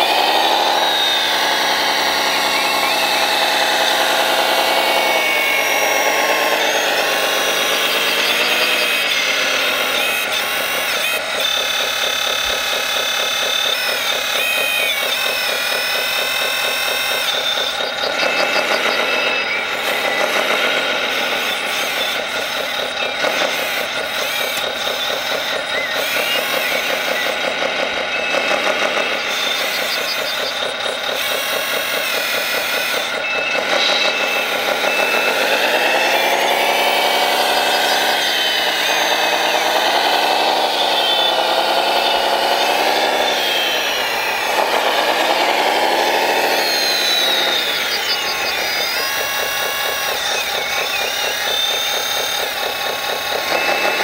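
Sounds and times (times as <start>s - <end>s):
model vehicle motor whine: 0.0s - 54.0s.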